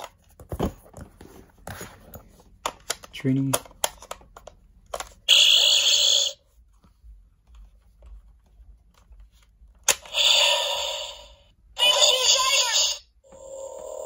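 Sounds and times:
toy crackling electric burst: 0:05.3 - 0:06.4, 0:09.9 - 0:13.0.

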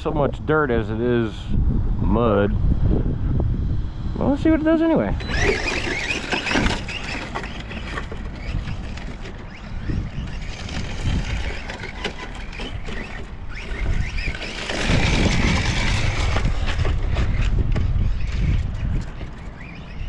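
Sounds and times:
rc car motor whine: 0:04.4 - 0:20.0
low rumble: 0:09.8 - 0:19.1.

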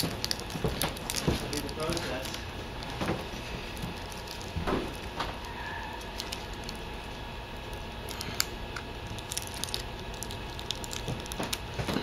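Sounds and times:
small plastic clicks and crinkles: 0:00.0 - 0:02.9, 0:08.0 - 0:12.0
low background hum: 0:00.0 - 0:12.0.

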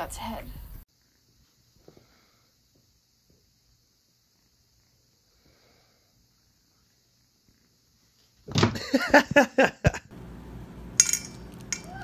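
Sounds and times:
low steady hum: 0:10.1 - 0:12.0
clinks against a dish: 0:11.0 - 0:11.9.

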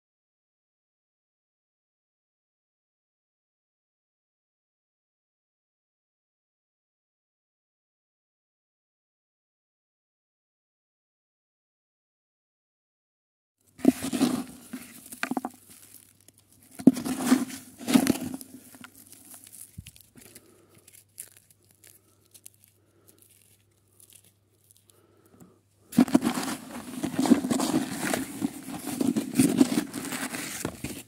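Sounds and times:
hands scrabbling through soil: 0:13.7 - 0:25.3, 0:25.9 - 0:31.0
roots tearing: 0:13.8 - 0:25.2, 0:25.9 - 0:31.0.

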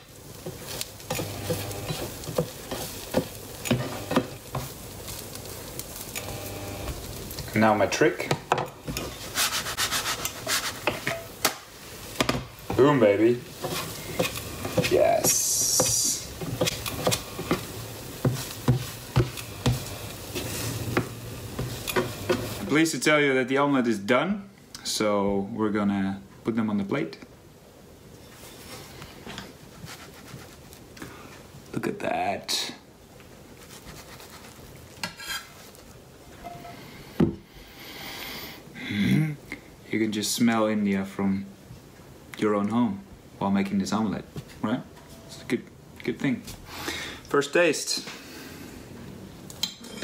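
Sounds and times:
faint steady hiss: 0:00.0 - 0:50.0
spatula scraping frying pan: 0:00.2 - 0:05.5, 0:08.8 - 0:11.4, 0:12.0 - 0:22.7, 0:33.6 - 0:35.8.

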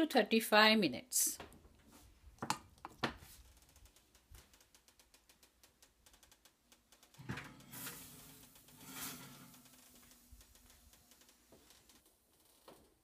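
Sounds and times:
metal pan scraping on oven rack: 0:07.2 - 0:10.2.

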